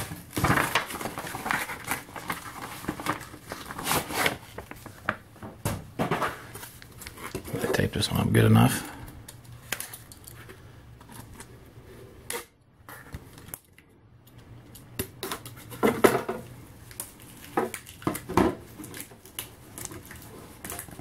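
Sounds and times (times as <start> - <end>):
cardboard rustling: 0.0 - 7.9.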